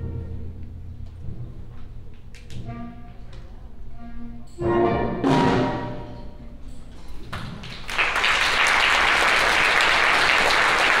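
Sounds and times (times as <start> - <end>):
audience applauding: 7.3 - 11.0.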